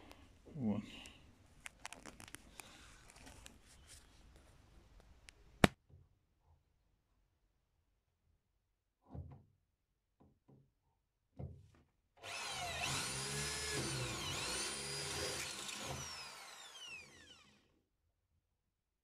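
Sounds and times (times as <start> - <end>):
electric drill boring metal: 12.2 - 17.7.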